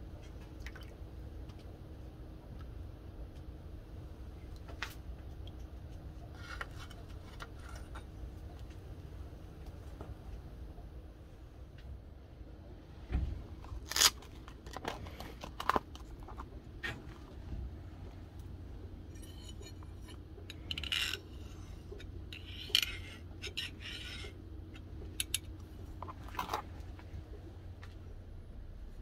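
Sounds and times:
metal scraping: 19.0 - 26.7
metal parts clinking on anvil: 19.1 - 21.6.

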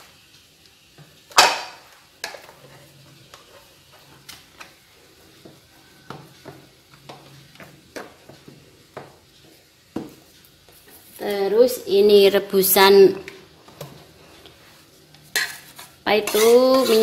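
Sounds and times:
spatula scraping metal beaters: 13.8 - 17.0.

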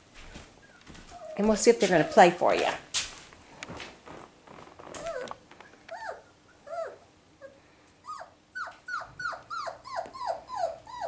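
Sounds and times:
puppy whimpering: 0.6 - 2.4, 4.9 - 11.0.

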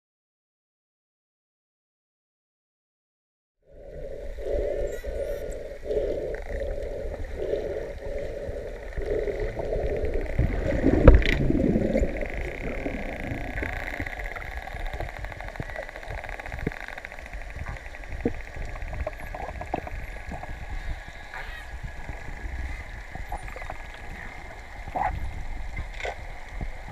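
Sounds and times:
underwater rumble and hiss: 3.7 - 26.9
dolphins clicking buzz: 4.4 - 26.9.

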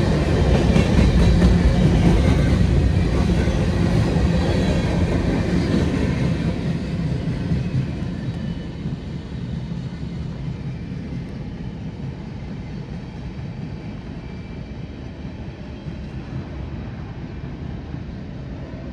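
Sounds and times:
train wheels rumbling on rail: 0.0 - 18.9.

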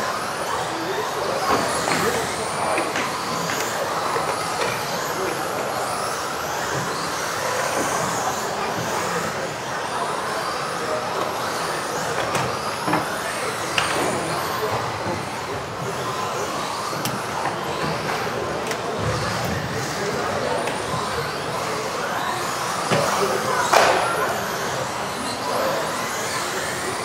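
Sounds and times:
electric motor whines: 0.0 - 27.0.

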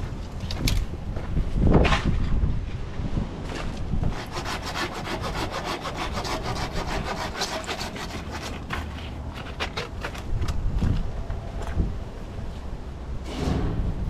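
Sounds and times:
rapid scraping strokes: 4.1 - 9.9.

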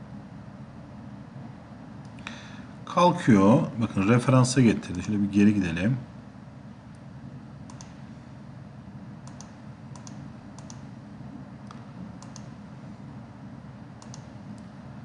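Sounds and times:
steady low hum: 0.0 - 15.0
mouse double clicks: 9.2 - 10.8, 11.7 - 12.5, 14.0 - 14.7.

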